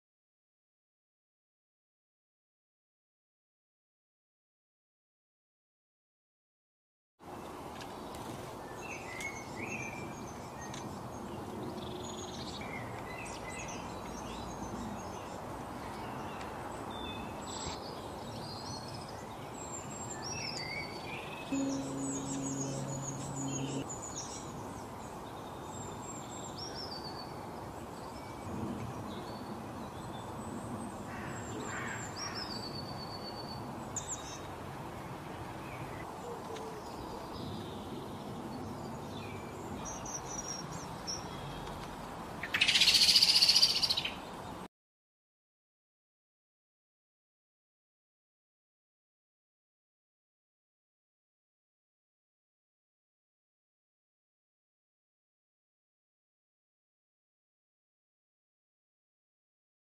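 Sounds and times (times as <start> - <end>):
outdoor ambience hiss: 7.2 - 44.7
low steady drone: 21.5 - 23.9
small birds chirping: 36.8 - 44.6.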